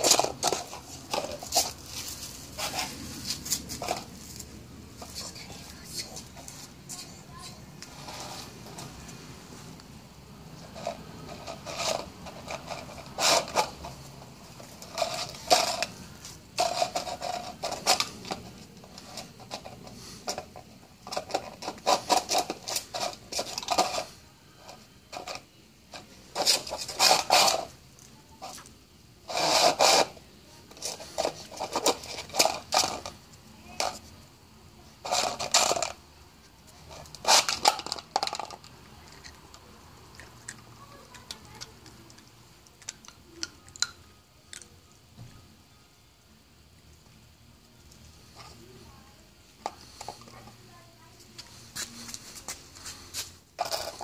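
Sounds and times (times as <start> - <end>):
plastic cups scraping on concrete: 0.0 - 6.6, 7.4 - 9.2, 10.5 - 34.2, 35.0 - 36.0, 36.7 - 43.1, 51.7 - 54.0.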